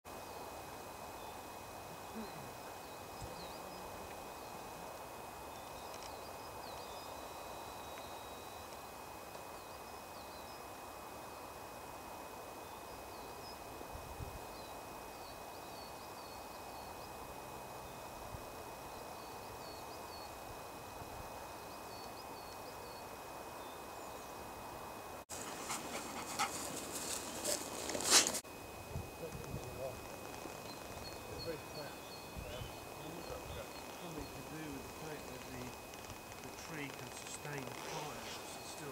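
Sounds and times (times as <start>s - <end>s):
steady hiss: 0.1s - 38.9s
small birds chirping: 2.0s - 4.7s, 29.7s - 38.9s.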